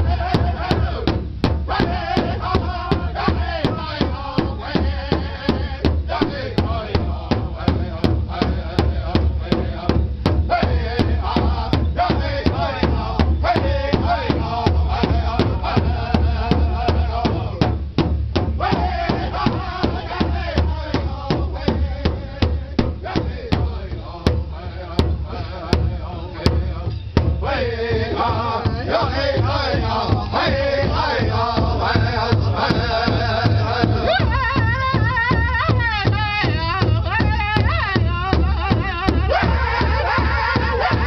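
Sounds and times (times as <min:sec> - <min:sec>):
large drum steady fast beat: 0:00.0 - 0:41.0
men singing together: 0:00.0 - 0:41.0.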